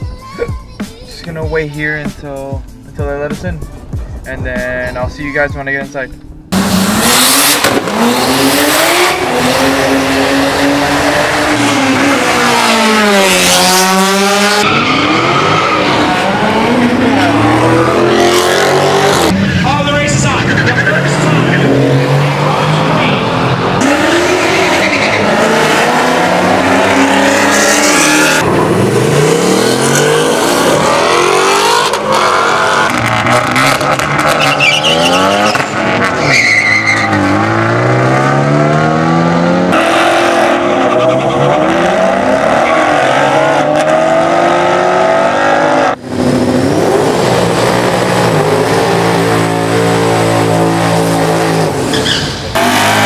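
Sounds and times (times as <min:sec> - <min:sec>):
racing car engines revving: 0:06.1 - 0:53.0
tyre squeal: 0:34.3 - 0:37.4, 0:51.8 - 0:52.5.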